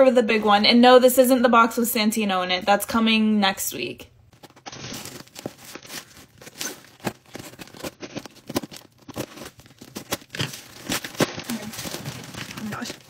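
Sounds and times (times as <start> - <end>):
packaging tearing and crinkling: 4.4 - 13.0.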